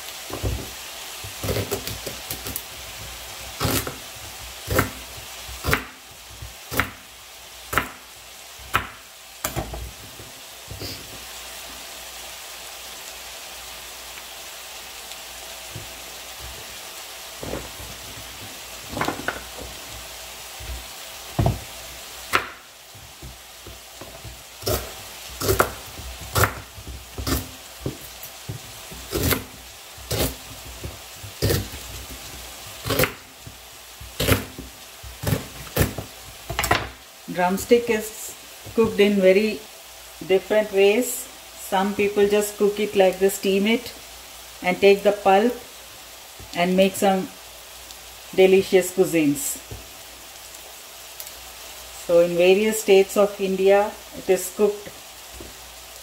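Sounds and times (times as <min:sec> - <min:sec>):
onions sizzling in a pan: 0:00.0 - 0:56.0
knife chopping on cutting board: 0:07.7 - 0:08.0, 0:08.7 - 0:09.9, 0:22.3 - 0:22.6, 0:23.2 - 0:36.9.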